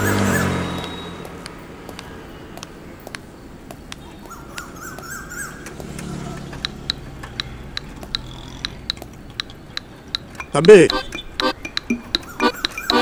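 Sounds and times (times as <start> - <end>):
birds chirping: 0.0 - 13.0
low traffic rumble: 0.0 - 13.0
sharp repeated chip notes: 6.6 - 13.0.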